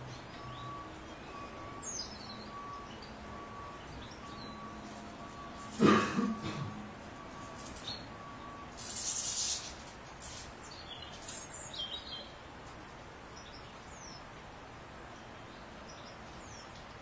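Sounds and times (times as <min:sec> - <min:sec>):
goldfinch calling: 0:00.0 - 0:12.3
steady background noise: 0:00.0 - 0:17.0.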